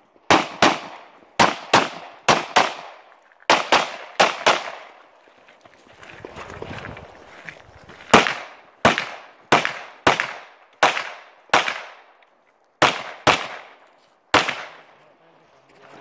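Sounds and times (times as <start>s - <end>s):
pistol shots with echo: 0.3s - 5.0s, 8.1s - 12.2s, 12.8s - 14.9s.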